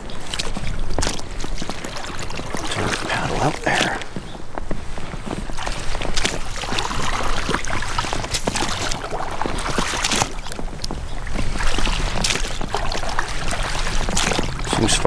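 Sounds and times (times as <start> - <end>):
oars splashing in water: 0.0 - 15.0
wind on microphone: 0.0 - 15.0.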